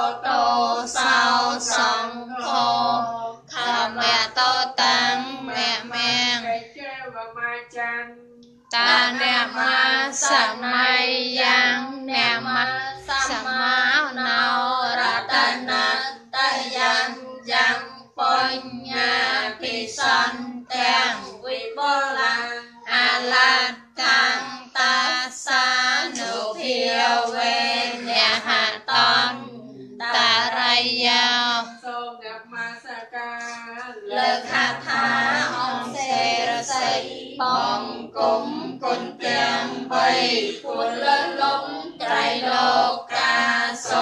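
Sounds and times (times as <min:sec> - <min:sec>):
high-pitched voices chanting: 0:33.9 - 0:44.0.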